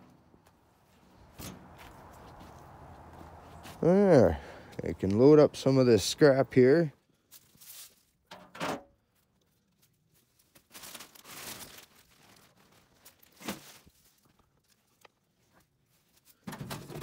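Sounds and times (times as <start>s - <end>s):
rustling: 7.2s - 8.2s, 9.0s - 16.4s.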